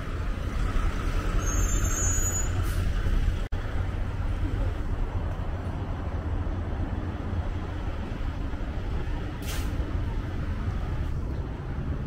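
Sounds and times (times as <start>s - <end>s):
rumble of passing vehicles: 0.0s - 12.0s
short sharp hiss: 9.4s - 9.8s.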